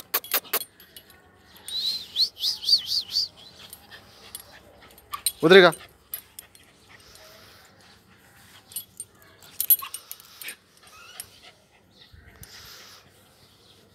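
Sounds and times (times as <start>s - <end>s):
metal chain leash clinking: 0.0s - 1.8s, 3.6s - 7.3s, 8.6s - 11.4s.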